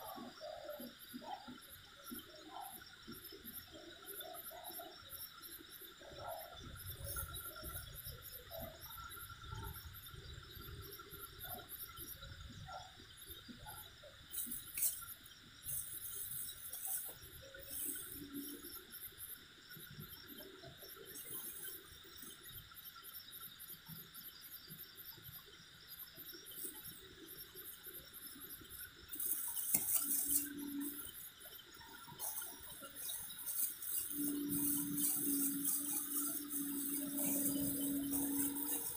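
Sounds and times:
crickets chirping: 0.0 - 38.9
hands rustling and scraping dirt: 14.3 - 18.6, 29.1 - 31.1, 31.8 - 38.9.

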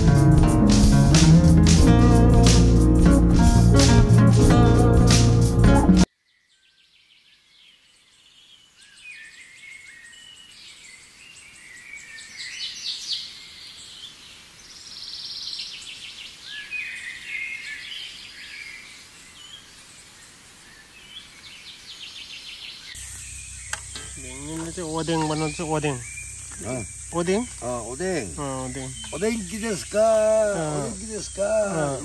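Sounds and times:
faint outdoor hiss: 0.0 - 32.0
birds chirping and singing: 20.7 - 32.0.

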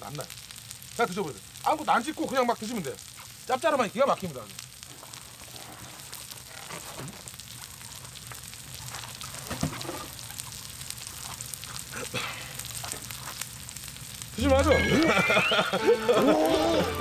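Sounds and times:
food sizzling on grill: 0.0 - 17.0
low murmur while eating: 4.5 - 14.4.

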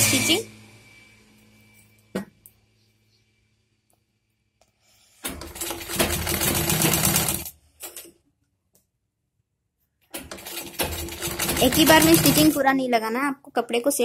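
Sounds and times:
sewing machine stitching: 5.2 - 8.0, 10.1 - 12.6.

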